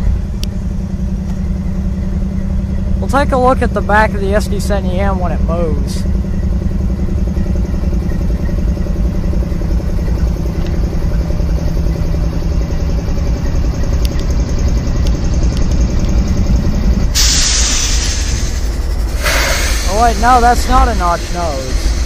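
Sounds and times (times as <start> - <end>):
locomotive engines idling: 0.0 - 22.0
loud air hiss: 17.1 - 22.0.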